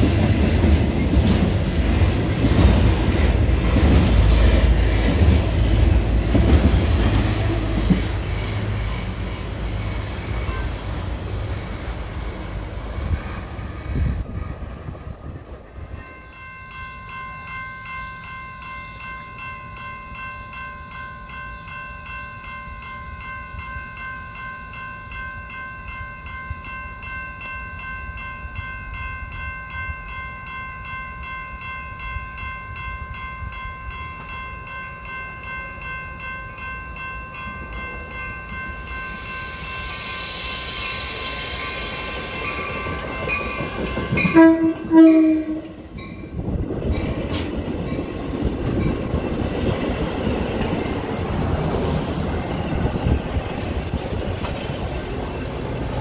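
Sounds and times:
crossing warning bell ringing: 0:00.0 - 0:14.7, 0:15.3 - 0:56.0
train rumble and rail noise: 0:00.0 - 0:56.0
loud train horn blast: 0:40.2 - 0:45.8.

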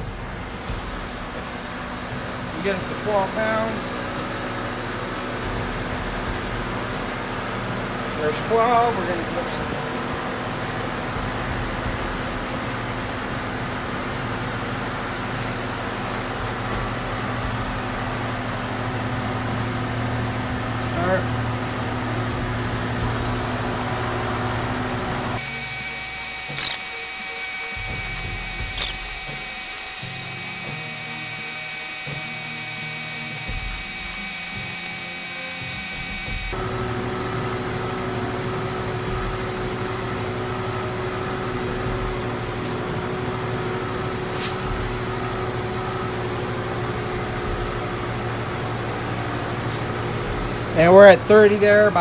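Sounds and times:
portable air compressor running: 0:00.0 - 0:50.9
sharp clicks: 0:25.4 - 0:36.6.

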